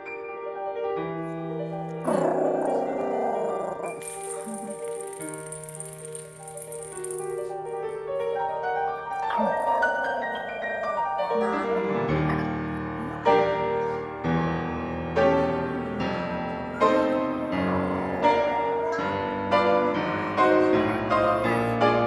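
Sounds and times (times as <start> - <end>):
solo piano chords: 0.0 - 22.0.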